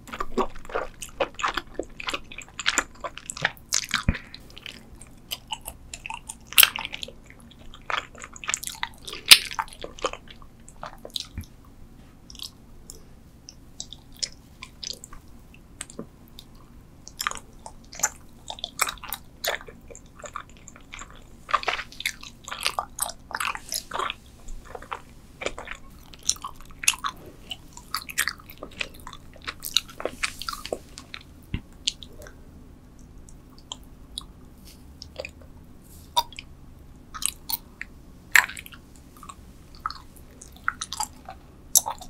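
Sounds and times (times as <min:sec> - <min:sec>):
wet chewing mouth clicks: 0:12.3 - 0:32.4, 0:36.1 - 0:36.5, 0:37.2 - 0:42.0.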